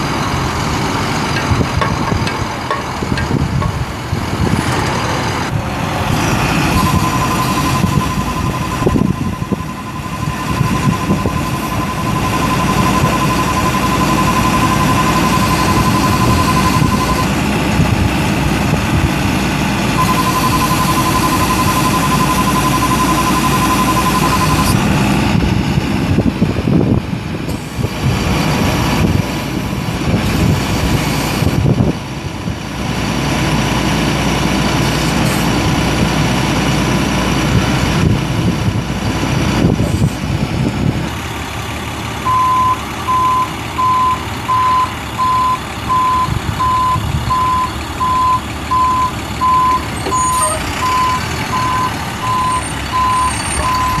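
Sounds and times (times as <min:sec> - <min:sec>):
diesel truck engine running: 0:00.0 - 0:54.0
backup alarm beeping: 0:06.7 - 0:17.4, 0:20.0 - 0:24.8, 0:42.3 - 0:54.0.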